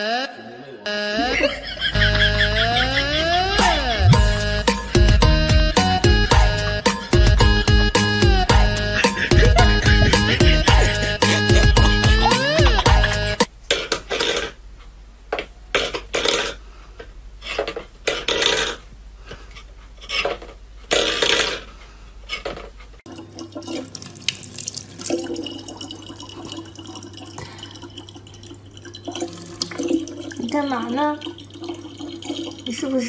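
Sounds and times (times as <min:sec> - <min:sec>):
low hum: 0:01.2 - 0:13.4
tap water running into bottle: 0:23.1 - 0:33.0.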